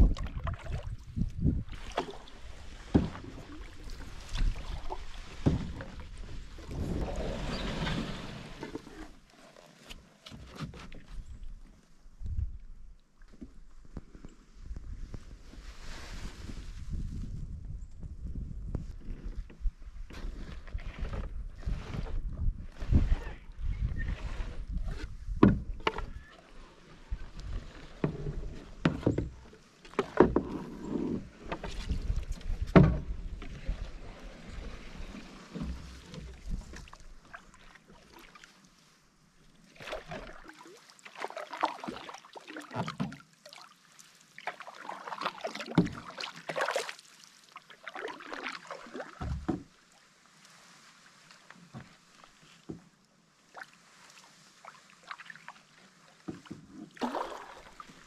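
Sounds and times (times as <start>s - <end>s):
paddle swishing water: 0.0s - 17.4s, 18.8s - 58.0s
knocks against canoe hull: 2.8s - 3.4s, 25.3s - 26.2s, 32.6s - 33.2s, 49.2s - 49.7s.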